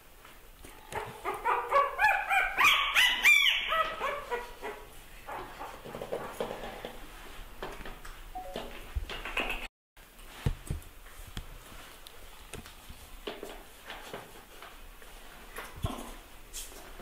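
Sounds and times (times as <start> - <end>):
puppy yelping and whimpering: 0.9 - 4.9.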